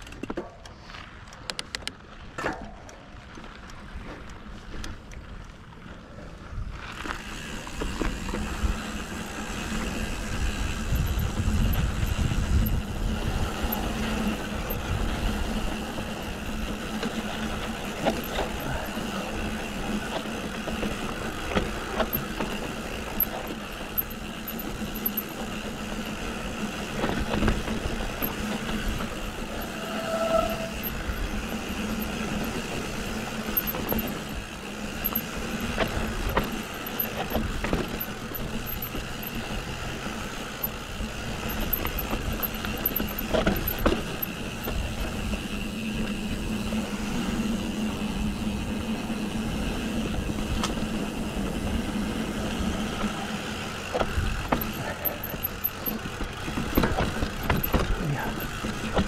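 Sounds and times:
bike rattling over bumps: 0.0s - 59.0s
bike tyres on dirt: 0.0s - 59.0s
high squeal: 29.4s - 31.4s.

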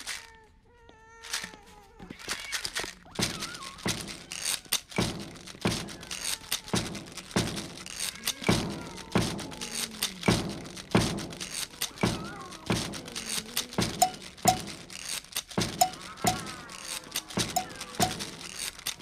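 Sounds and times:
loud percussive thumps: 5.0s - 18.6s.

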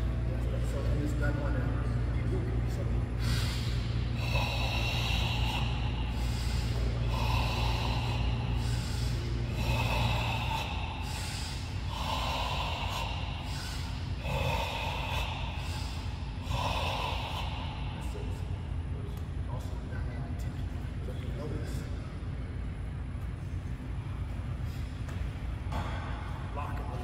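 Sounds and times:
person breathing forcefully: 3.0s - 18.9s.

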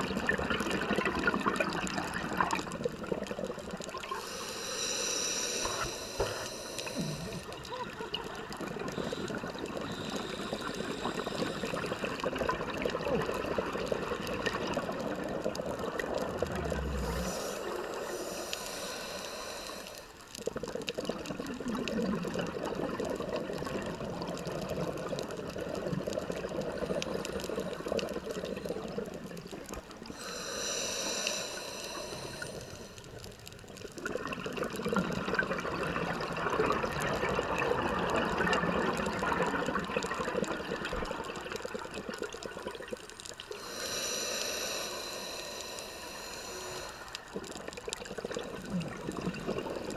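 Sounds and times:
exhaled bubbles gurgling underwater: 0.0s - 49.9s
regulator hissing inhale: 4.1s - 7.7s, 8.8s - 12.3s, 16.4s - 20.4s, 30.0s - 33.4s, 43.2s - 48.8s.

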